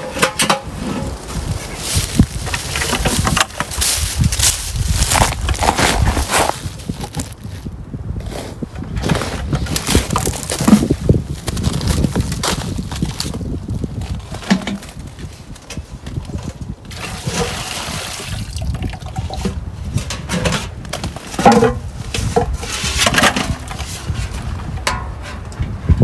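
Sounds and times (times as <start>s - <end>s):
metal bucket clanking: 0.0s - 4.0s, 14.4s - 15.0s, 16.4s - 25.6s
sap pouring into pail: 16.9s - 19.5s.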